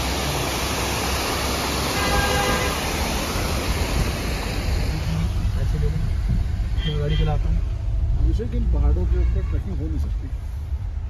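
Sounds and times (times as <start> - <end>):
road and wind noise: 0.0 - 11.0
deep engine rumble: 2.8 - 11.0.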